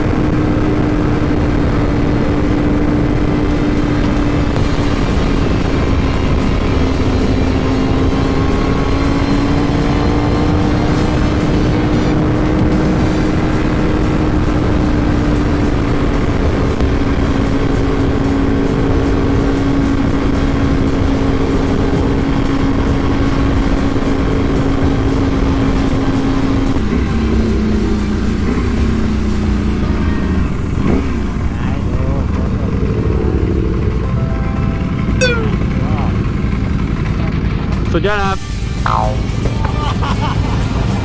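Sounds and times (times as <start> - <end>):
wind rush: 0.0 - 19.4
motorcycle engine at high speed: 0.0 - 41.0.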